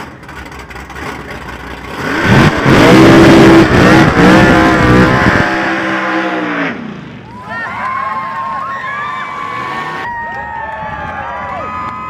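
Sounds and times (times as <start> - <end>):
truck engine revving: 0.0 - 7.2.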